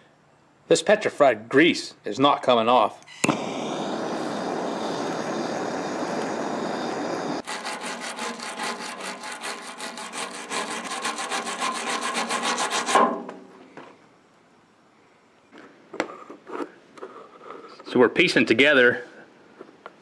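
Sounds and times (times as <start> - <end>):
propane torch flame hissing: 3.1 - 8.0
stiff brush scrubbing metal: 7.4 - 13.1.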